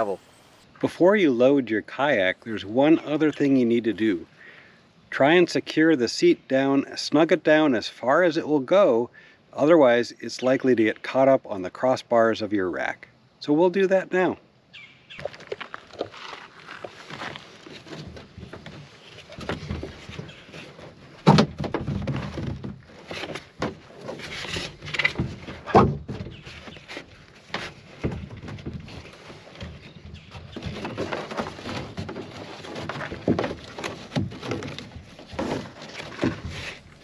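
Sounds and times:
nylon webbing rustling through buckles: 15.2 - 21.2.

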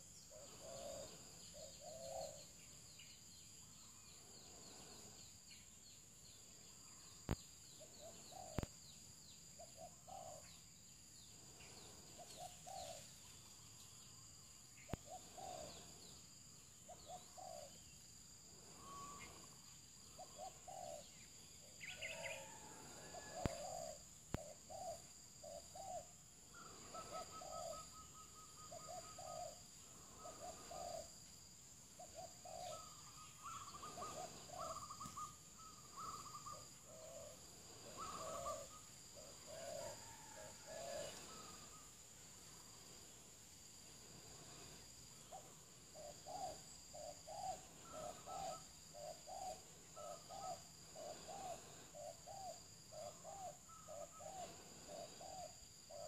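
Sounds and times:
dove cooing: 0.0 - 2.5, 7.9 - 8.7, 9.6 - 10.5, 12.0 - 13.1, 14.9 - 16.0, 16.9 - 17.7, 18.7 - 31.2, 32.0 - 41.9, 44.2 - 56.0
high insect drone: 0.0 - 56.0.

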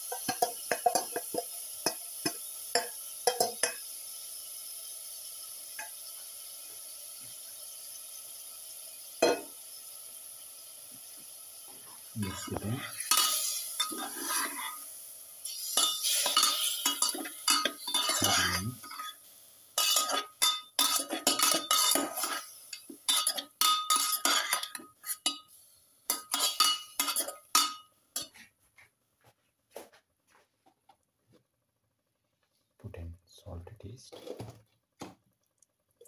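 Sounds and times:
metal spoon scraping steel pot: 12.3 - 14.8, 15.5 - 19.2, 19.8 - 22.5, 23.1 - 25.4, 26.1 - 28.4.

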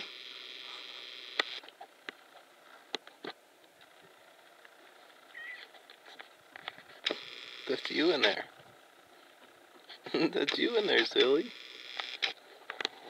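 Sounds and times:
sharp ticks and clicks: 6.6 - 8.4, 10.4 - 13.0.

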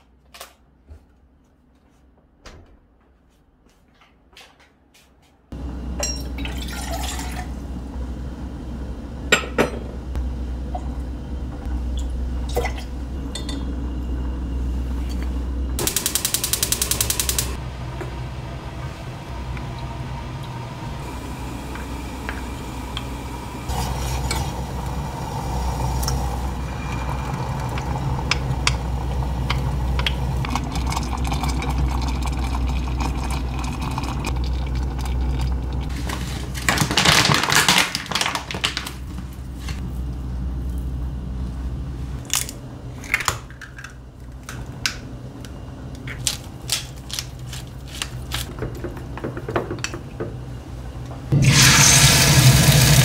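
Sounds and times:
steady low hum: 5.5 - 36.7, 39.0 - 53.0
gas igniter ticking: 15.8 - 17.6.

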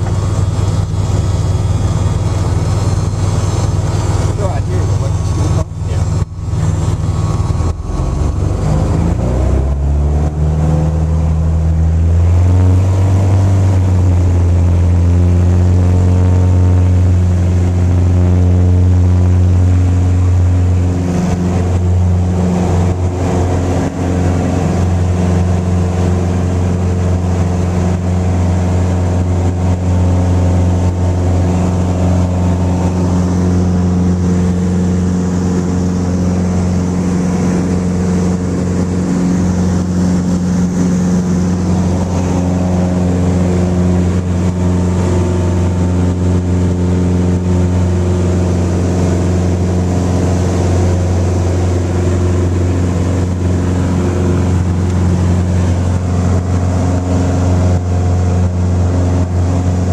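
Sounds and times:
light aircraft engine and propeller: 0.0 - 59.9.

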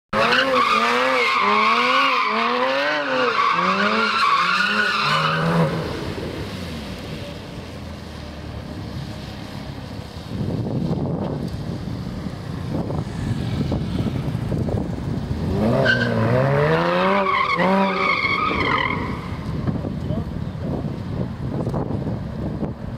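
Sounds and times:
car engine revving: 12.7 - 19.8.

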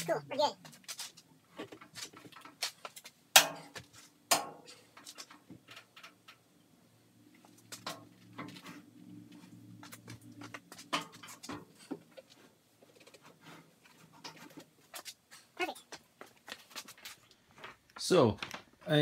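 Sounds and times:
metal clanks and knocks: 3.3 - 6.5, 9.9 - 12.3.

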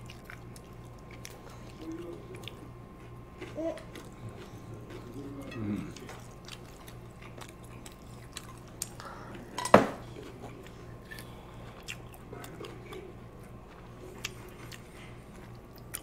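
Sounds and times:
faint low hum: 0.0 - 16.0
cutlery and dishes clinking: 9.6 - 10.0.

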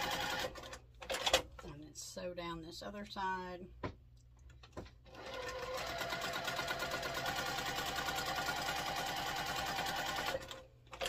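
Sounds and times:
electric sewing machine stitching: 0.0 - 0.7, 5.1 - 11.0.

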